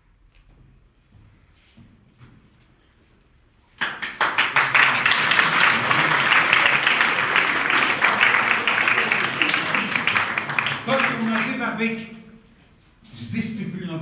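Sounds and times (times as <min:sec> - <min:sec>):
audience applauding: 0:03.8 - 0:12.1.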